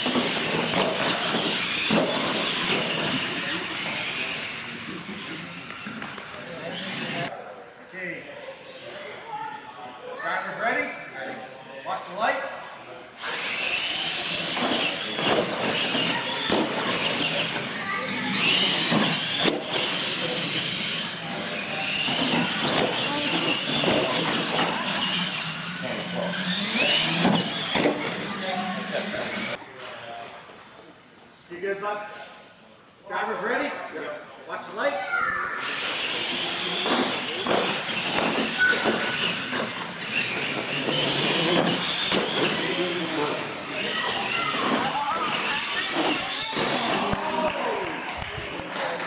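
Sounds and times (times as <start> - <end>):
toy trucks clunking on ramps: 0.0 - 4.4, 13.3 - 29.6, 35.7 - 47.1
electric motors whining: 0.0 - 7.3, 13.1 - 29.6, 35.6 - 47.5
electric motor and gear whine: 13.2 - 29.6.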